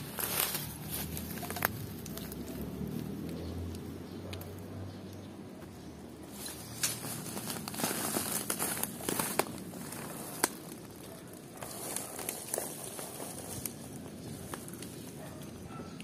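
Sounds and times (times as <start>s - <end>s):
leaves and twigs rustling: 0.0s - 4.6s, 5.6s - 16.0s
twig snapping: 6.4s - 11.0s.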